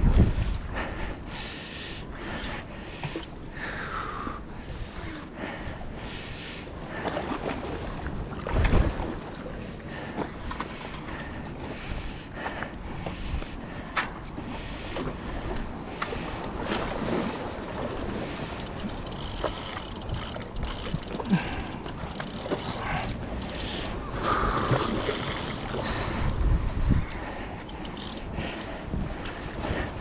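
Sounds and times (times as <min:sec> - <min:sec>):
wind buffeting microphone: 0:00.0 - 0:01.0, 0:17.0 - 0:30.0
water lapping against rocks: 0:06.8 - 0:26.3
fishing reel ticking: 0:18.4 - 0:26.0, 0:27.6 - 0:28.8.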